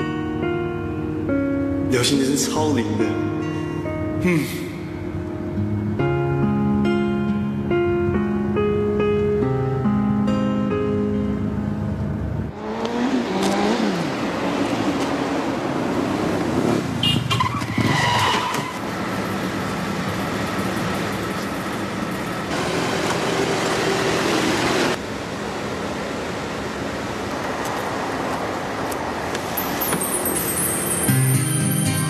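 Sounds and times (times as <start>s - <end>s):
bus and motorcycle in traffic: 3.8s - 32.0s
brakes squealing: 16.8s - 25.0s, 27.5s - 32.0s.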